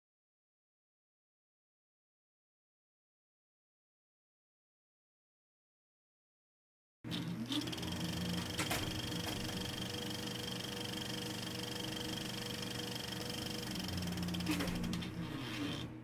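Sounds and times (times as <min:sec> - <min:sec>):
machine whirring hum: 0:07.1 - 0:16.0.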